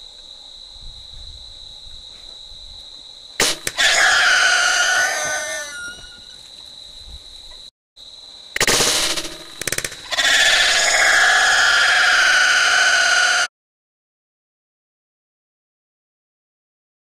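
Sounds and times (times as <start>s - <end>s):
crickets trilling: 0.0s - 13.5s
bow shot snap: 3.4s - 3.8s
wild boar squealing: 3.7s - 6.4s, 10.0s - 13.5s.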